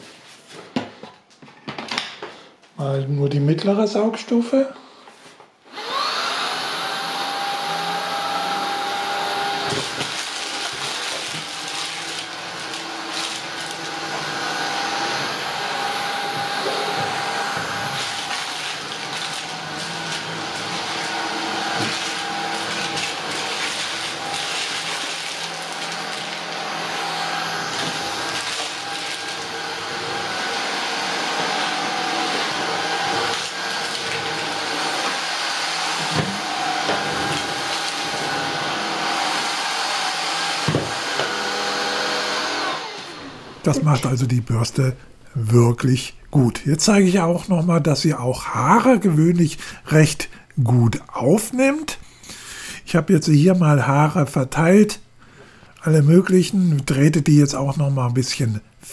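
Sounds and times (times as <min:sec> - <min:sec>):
vacuum motor whine: 0:05.7 - 0:43.6.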